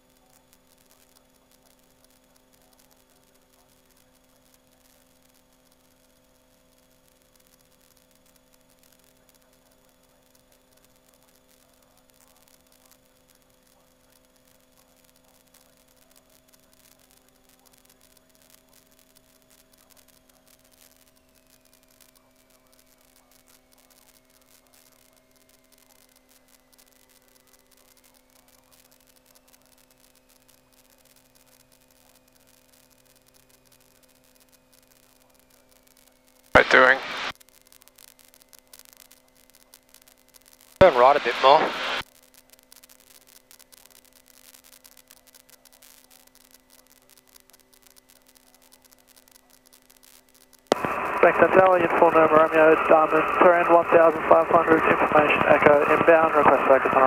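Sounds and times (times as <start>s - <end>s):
faint electrical hum: 0.0s - 57.0s
thin high whine: 36.6s - 37.3s, 40.8s - 42.0s, 50.7s - 57.0s.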